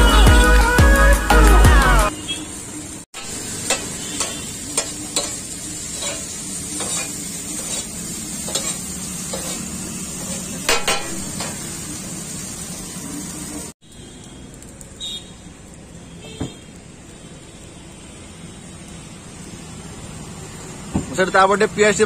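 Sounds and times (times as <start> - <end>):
noodles sizzling on a griddle: 2.1 - 22.0
metal spatula scraping griddle: 3.2 - 11.7.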